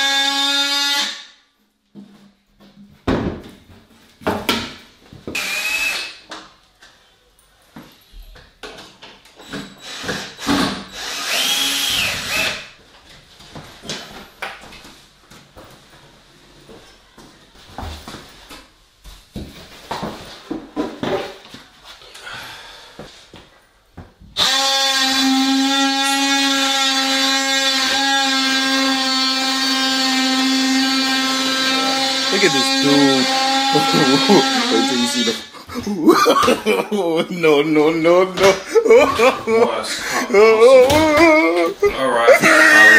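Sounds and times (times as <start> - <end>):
power tool motor whine: 9.8 - 12.6, 24.4 - 35.5.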